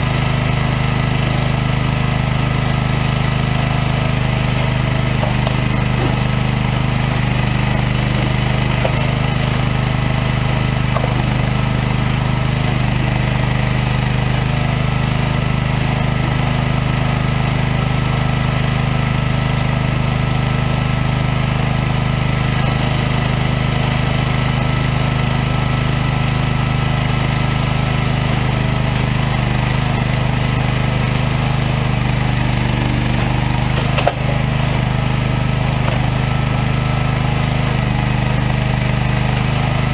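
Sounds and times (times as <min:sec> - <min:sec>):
firewood processor engine running: 0:00.0 - 0:39.9.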